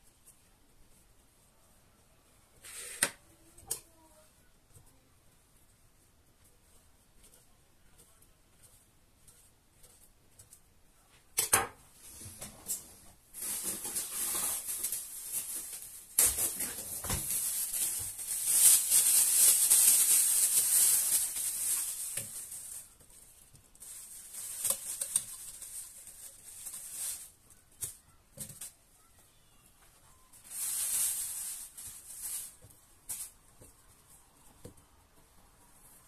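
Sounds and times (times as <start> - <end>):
plastic bag crinkling: 12.7 - 29.1, 30.0 - 33.4.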